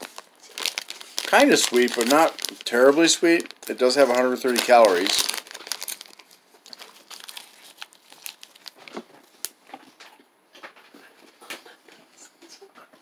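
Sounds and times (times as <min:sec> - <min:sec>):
plastic wrapper crinkling: 0:00.0 - 0:09.6.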